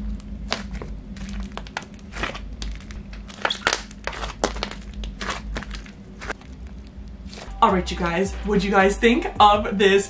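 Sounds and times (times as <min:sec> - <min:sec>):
slime clicking and popping: 0:00.4 - 0:07.5.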